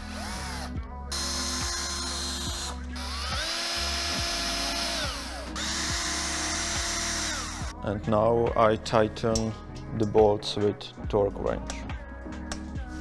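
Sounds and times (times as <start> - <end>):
cordless drill whining: 0.0 - 7.7.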